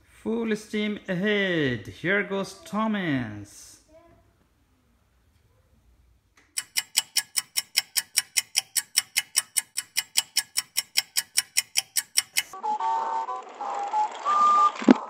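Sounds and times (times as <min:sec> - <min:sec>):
rapid sharp ticks: 0:06.5 - 0:12.6.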